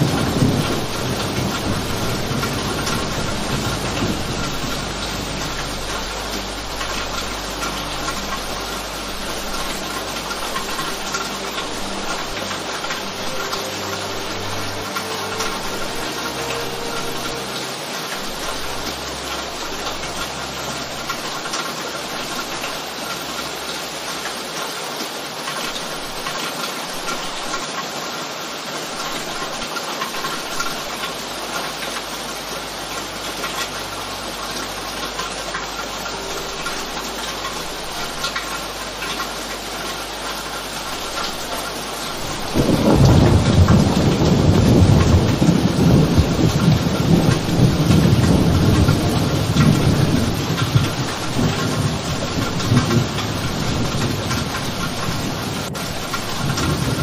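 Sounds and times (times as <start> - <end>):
low roll of thunder: 0.0 - 8.6, 42.2 - 57.0
steady rain: 0.0 - 57.0.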